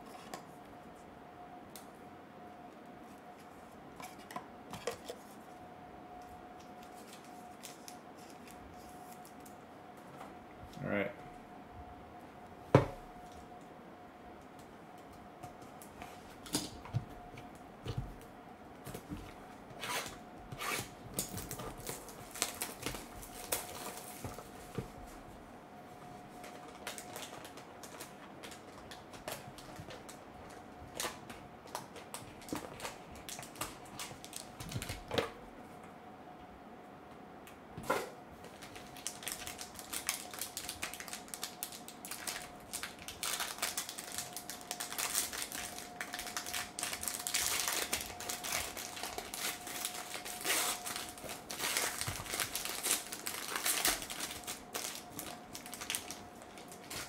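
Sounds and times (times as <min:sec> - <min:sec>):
foil wrapper crinkling: 0:19.9 - 0:24.6, 0:26.4 - 0:35.1, 0:38.4 - 0:57.0.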